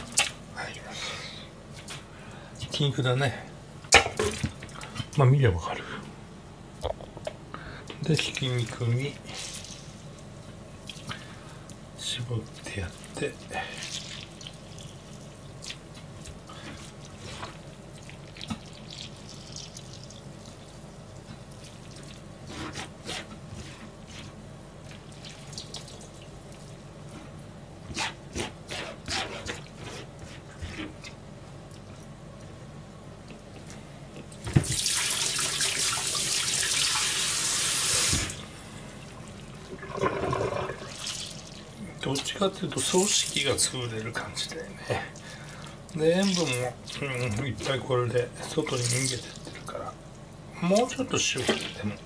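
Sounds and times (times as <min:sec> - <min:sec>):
wet squishes and drips: 0:08.0 - 0:22.3, 0:24.8 - 0:26.9, 0:40.7 - 0:43.5, 0:45.0 - 0:47.9
tap water running into sink: 0:34.5 - 0:38.4, 0:39.7 - 0:41.4.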